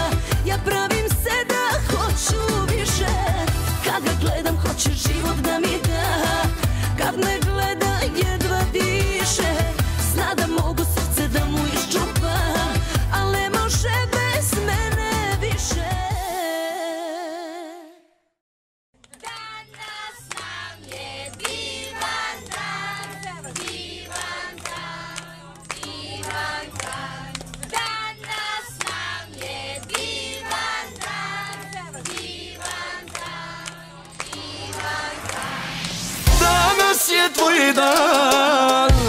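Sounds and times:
song with bass line: 0.0s - 16.2s, 34.8s - 39.0s
music: 0.0s - 16.9s, 19.2s - 39.0s
group of people singing: 0.0s - 17.8s, 19.2s - 39.0s
people clapping: 19.0s - 39.0s.

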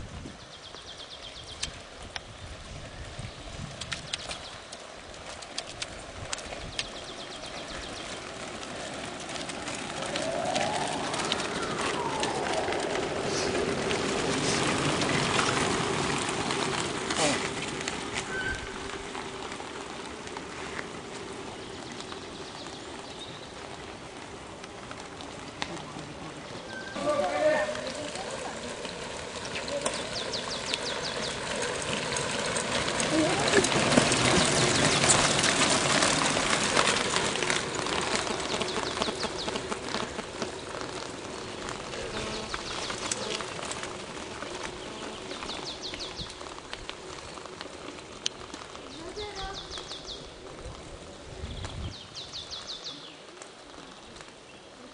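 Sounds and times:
bike tyres on cobblestones: 0.0s - 54.9s
songbird singing: 0.3s - 5.1s, 6.4s - 8.6s, 10.0s - 16.1s, 18.2s - 19.9s, 21.1s - 24.3s, 25.3s - 36.2s, 37.1s - 54.9s
small clicks: 3.8s - 7.0s.

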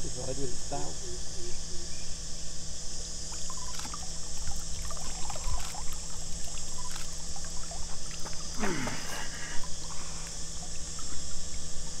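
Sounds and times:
high insect drone: 0.0s - 12.0s
water trickling and dripping: 3.3s - 8.6s, 9.6s - 12.0s
small water splashes: 3.3s - 12.0s.

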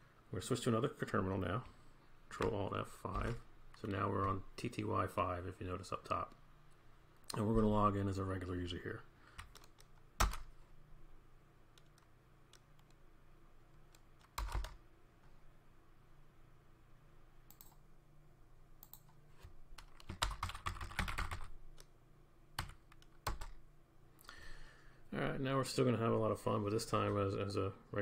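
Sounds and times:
keyboard typing: 2.4s - 3.4s, 9.4s - 10.5s, 13.9s - 14.8s, 19.8s - 21.9s, 22.6s - 23.6s.

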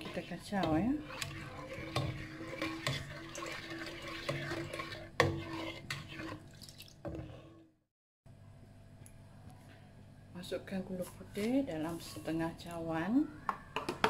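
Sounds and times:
liquid sloshing in a pot: 0.0s - 7.8s.

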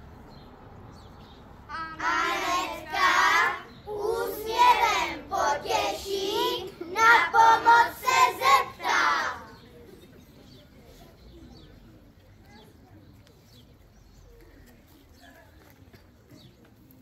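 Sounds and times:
children singing: 1.7s - 9.4s.

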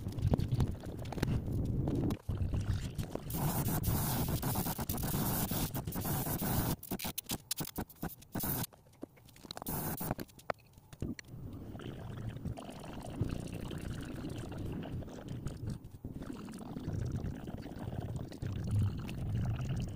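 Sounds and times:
airbrush spraying hiss: 3.3s - 7.1s, 8.0s - 8.7s, 9.7s - 10.2s.

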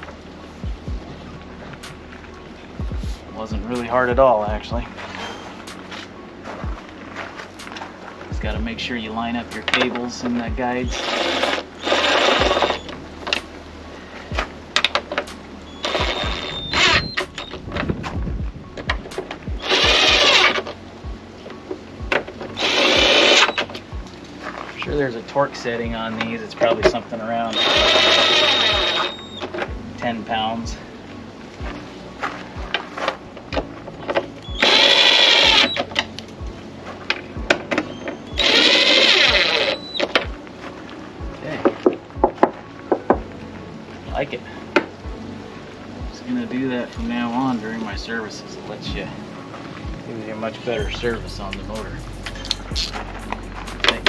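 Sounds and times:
power driver spinning screws: 10.9s - 12.8s, 19.6s - 20.6s, 22.6s - 23.6s, 27.6s - 29.2s, 34.6s - 35.8s, 38.4s - 39.9s
cordless drill whining: 10.9s - 12.9s, 15.8s - 17.5s, 19.6s - 20.7s, 22.6s - 23.7s, 27.5s - 29.4s, 34.5s - 35.9s, 38.3s - 40.2s.

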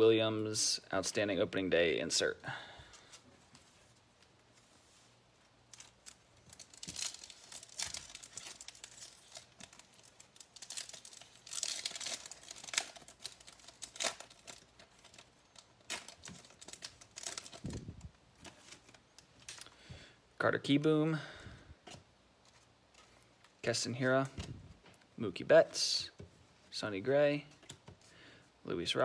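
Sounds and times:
card pack wrapper tearing: 5.7s - 17.9s.

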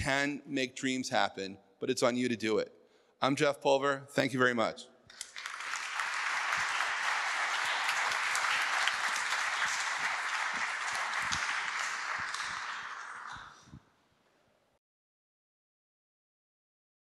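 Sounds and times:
audience applauding: 5.1s - 13.7s.

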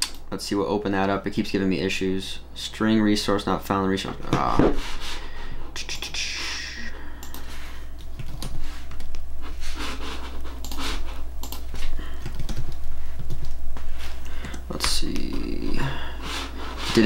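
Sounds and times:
keyboard and mouse clicks: 0.0s - 0.2s, 7.2s - 9.2s, 10.5s - 13.6s, 14.2s - 15.4s
steady low hum: 0.0s - 17.0s
breathing close to microphone: 4.8s - 5.7s, 11.8s - 13.3s, 13.9s - 14.7s, 15.7s - 17.0s.

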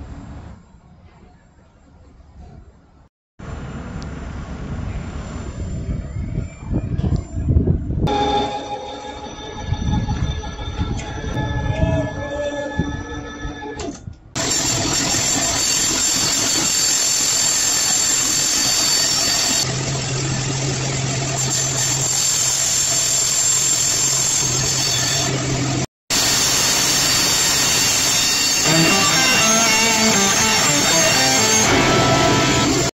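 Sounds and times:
music: 8.1s - 13.3s, 28.6s - 32.9s
bandsaw cutting wood: 26.2s - 32.9s.

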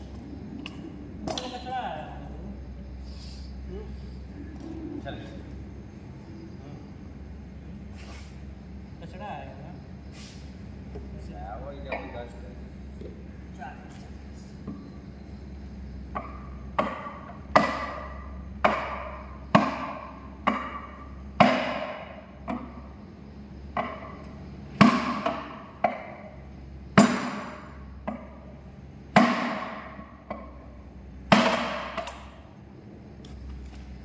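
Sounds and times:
sledgehammer striking metal: 16.2s - 22.2s, 29.2s - 30.1s, 31.3s - 32.2s.

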